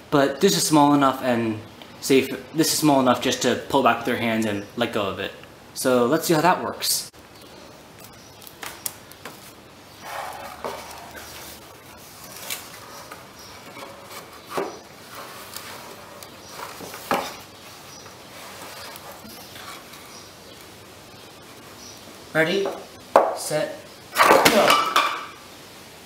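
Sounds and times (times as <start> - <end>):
wood scraping: 9.3 - 20.3.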